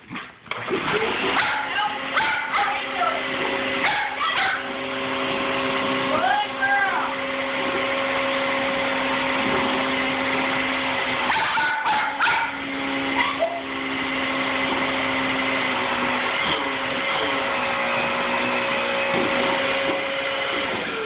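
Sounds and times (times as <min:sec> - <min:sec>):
vacuum cleaner motor hum: 0:00.5 - 0:21.0
dog barking: 0:01.3 - 0:02.9, 0:03.8 - 0:04.7, 0:11.2 - 0:13.6.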